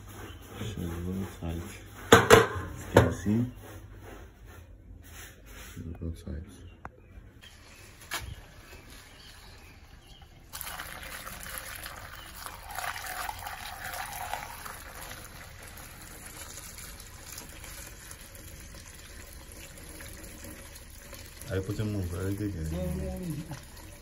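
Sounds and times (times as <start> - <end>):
fuel pouring through funnel: 7.5 - 24.0.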